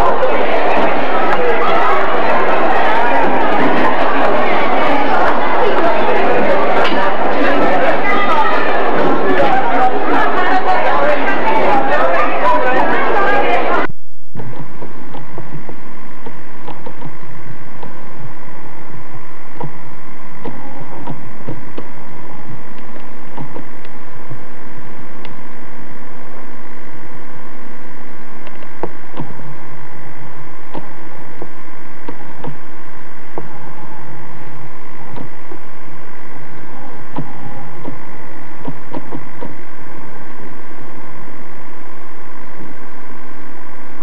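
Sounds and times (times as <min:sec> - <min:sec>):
electrical hum: 0:00.0 - 0:44.0
soft low taps: 0:30.6 - 0:33.6, 0:37.0 - 0:39.8.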